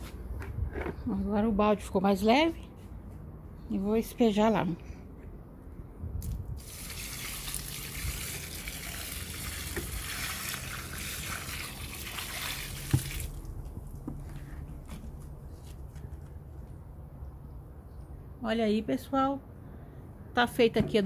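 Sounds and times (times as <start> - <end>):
water pouring onto soil: 6.2 - 14.0
water dripping: 6.6 - 14.0.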